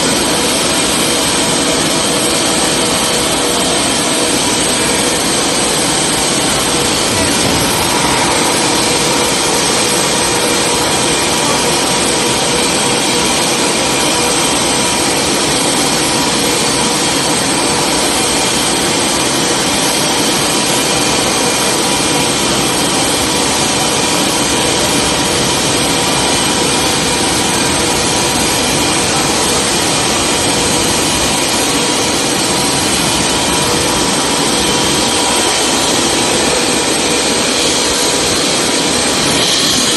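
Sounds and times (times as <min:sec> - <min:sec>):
landing gear machinery whine: 0:00.0 - 0:39.9
high steady tones: 0:00.1 - 0:12.8.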